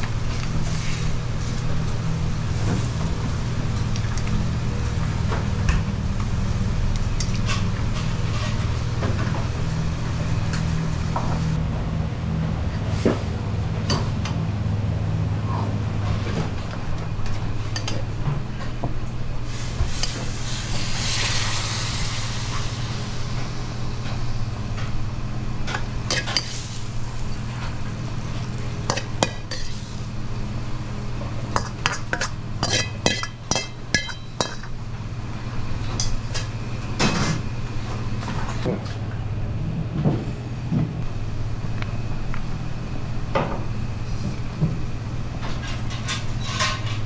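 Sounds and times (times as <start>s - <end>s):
low kitchen hum: 0.0s - 47.0s
hiss: 19.5s - 24.0s
metal ladle clinking on wok: 31.6s - 34.7s.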